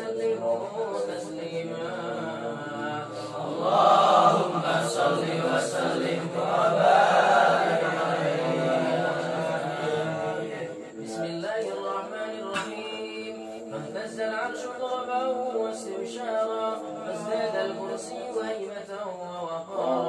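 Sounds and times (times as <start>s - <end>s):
men chanting together: 0.0s - 20.0s.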